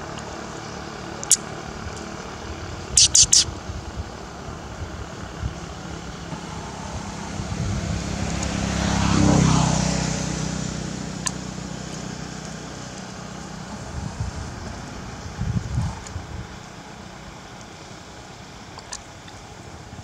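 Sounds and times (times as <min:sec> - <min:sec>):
sharp click: 0:03.0 - 0:03.5
vehicle engine driving past: 0:03.9 - 0:17.5.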